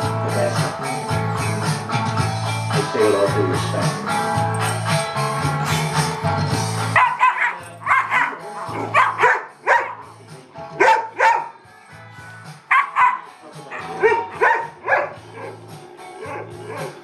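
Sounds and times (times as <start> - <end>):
background music with bass line: 0.0 - 17.0
dogs play barking: 6.8 - 10.1, 10.8 - 11.6, 12.6 - 15.6, 16.2 - 17.0.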